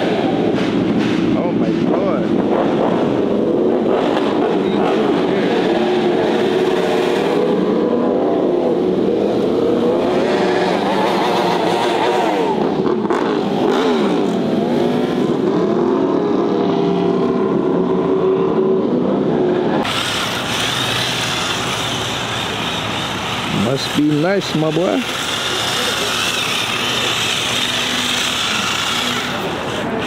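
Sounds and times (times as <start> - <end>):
car engine revving hard: 0.0 - 30.0.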